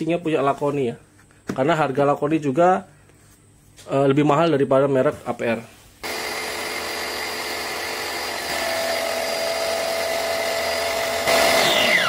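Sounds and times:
pressure washer motor running: 0:06.0 - 0:12.0.

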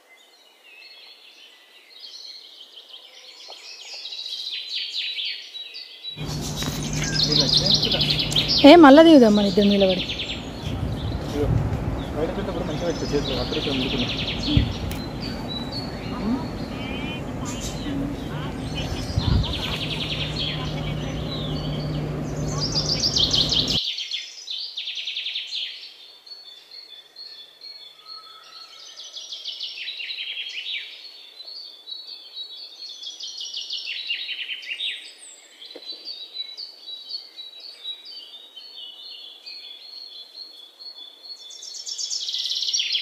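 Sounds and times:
flock of birds chirping: 0:00.4 - 0:23.8
falling runs of bird notes: 0:06.2 - 0:23.8.

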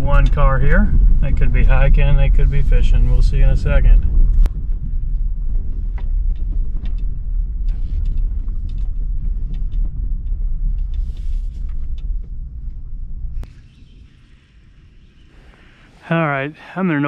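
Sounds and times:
car road rumble: 0:00.0 - 0:17.0
stones clicking under tyres: 0:04.4 - 0:13.0.

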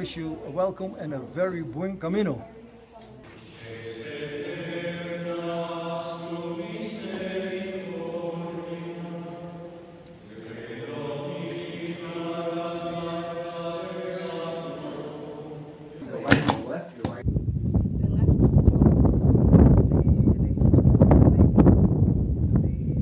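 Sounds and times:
liturgical chant: 0:03.2 - 0:17.2.

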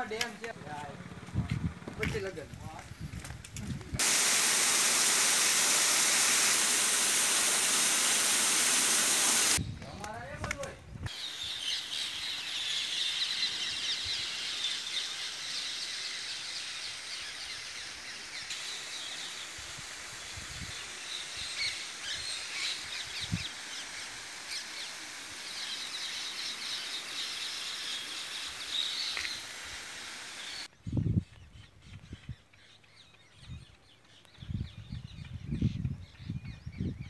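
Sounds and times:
small birds chirping: 0:10.9 - 0:37.0.

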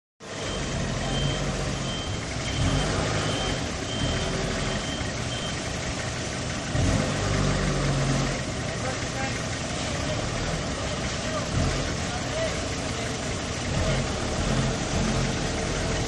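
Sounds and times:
forklift diesel engine running: 0:00.2 - 0:16.0
backup alarm beeping: 0:00.3 - 0:05.7.

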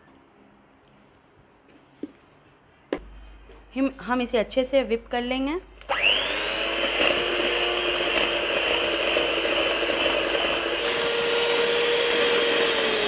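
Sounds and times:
electric hand mixer whining: 0:05.9 - 0:13.0.

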